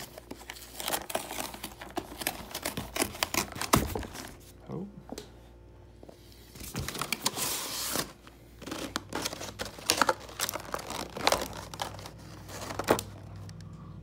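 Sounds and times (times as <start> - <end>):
stiff plastic crinkling and clicking: 8.6 - 13.8.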